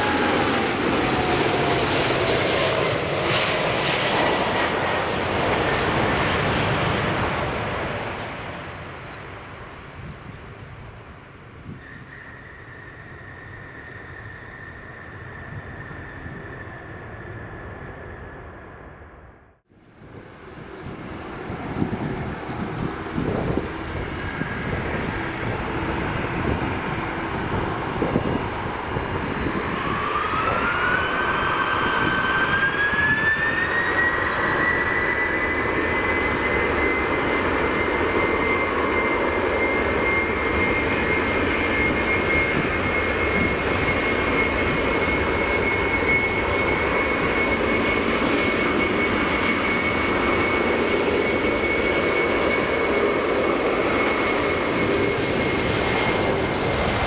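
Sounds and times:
jet engines whining: 0.0 - 57.0
loud engine rumble: 19.8 - 33.5.

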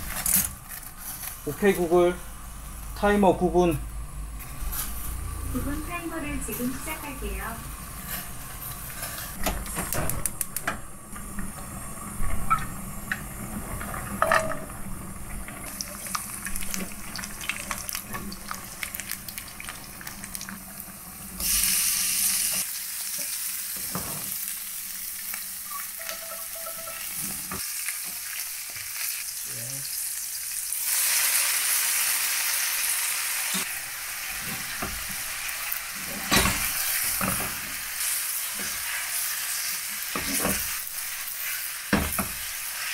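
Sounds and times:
food sizzling in a frying pan: 11.6 - 42.9
utensil clinking and scraping pan: 26.0 - 27.4.

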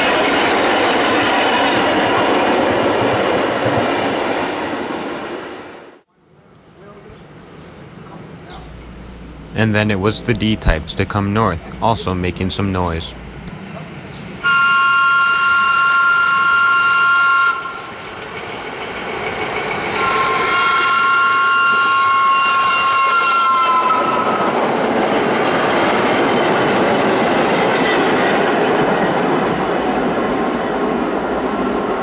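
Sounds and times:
train wheels rumbling on rail: 0.0 - 6.0, 7.7 - 32.0
subway train two-tone horn: 14.4 - 18.0, 19.9 - 24.6.

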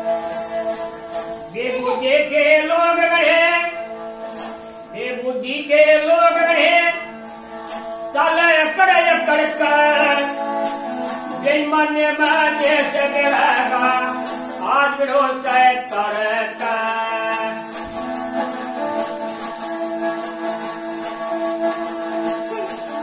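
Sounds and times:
small bells jingling: 0.0 - 5.1, 6.3 - 23.0
person singing: 1.5 - 3.8, 11.3 - 17.8, 22.2 - 23.0.

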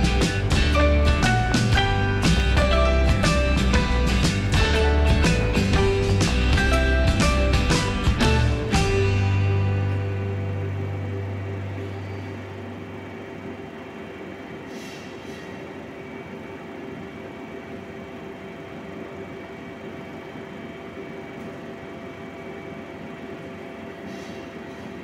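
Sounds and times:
brief hisses: 14.6 - 15.6.

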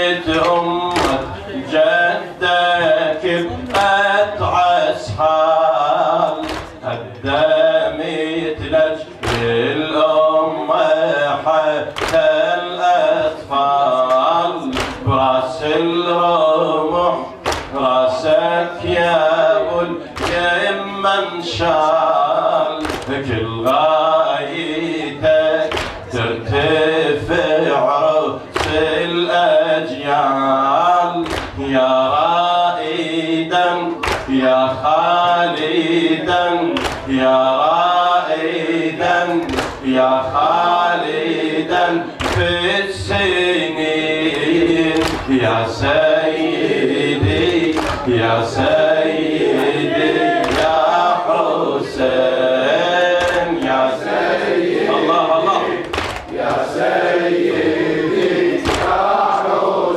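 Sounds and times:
man chanting into a microphone: 0.0 - 56.9
chest-beating slaps: 6.4 - 6.8, 14.7 - 15.1, 17.4 - 17.8, 25.7 - 26.1, 31.2 - 31.6, 34.0 - 34.4, 36.8 - 37.1, 39.4 - 39.8, 42.2 - 42.5, 44.4 - 45.4, 47.7 - 48.1, 50.4 - 50.8, 53.2 - 53.8, 55.8 - 56.6, 58.2 - 59.2.

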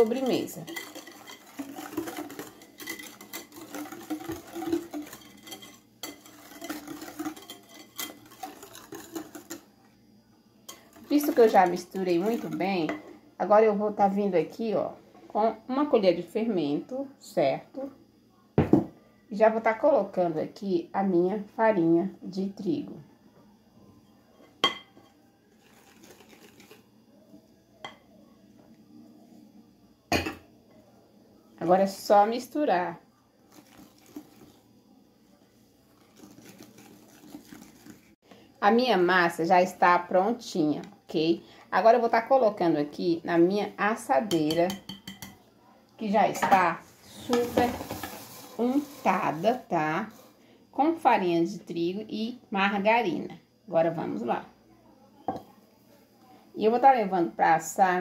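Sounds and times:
utensils clinking on glass bowl: 0.0 - 9.6, 44.3 - 45.4
whisk scraping glass bowl: 0.0 - 9.7, 10.7 - 13.1, 25.6 - 26.8, 33.5 - 34.6, 35.9 - 38.2, 47.0 - 50.4
knock on bowl: 18.6 - 19.0, 55.3 - 55.5.

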